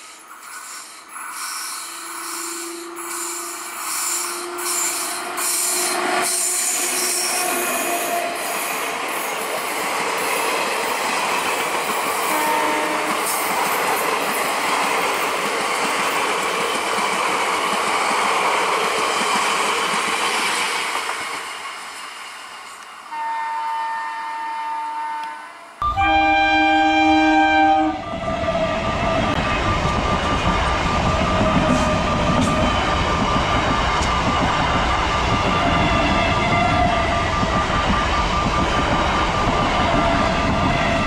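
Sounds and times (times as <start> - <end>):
train wheels rushing on rail: 0.0 - 23.2, 27.4 - 41.0
train horn note: 4.2 - 8.6, 12.2 - 13.4, 23.1 - 29.4.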